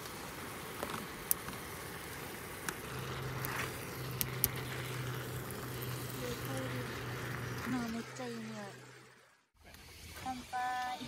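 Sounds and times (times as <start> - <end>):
steady hiss: 0.0 - 11.0
low hum: 2.6 - 9.6.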